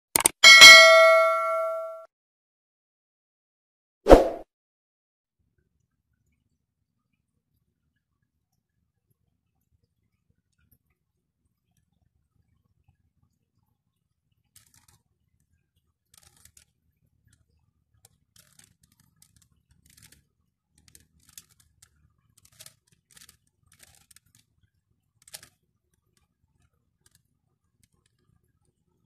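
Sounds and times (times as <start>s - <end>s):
plastic puzzle cube clicking: 16.1s - 16.7s, 18.1s - 20.2s, 20.8s - 24.4s, 25.2s - 25.6s.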